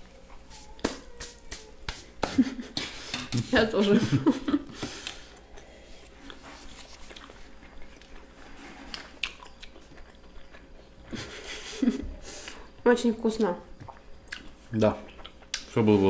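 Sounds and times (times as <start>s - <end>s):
people chewing: 4.4s - 12.8s, 13.4s - 16.0s.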